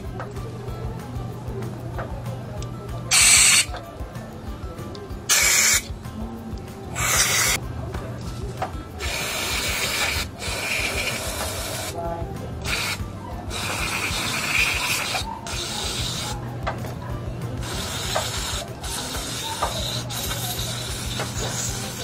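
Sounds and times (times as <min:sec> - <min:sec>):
background music: 0:00.0 - 0:22.0
aerosol spray hissing bursts: 0:03.1 - 0:03.7, 0:05.3 - 0:05.9, 0:07.0 - 0:07.6, 0:09.0 - 0:12.0, 0:12.6 - 0:16.4, 0:17.6 - 0:22.0.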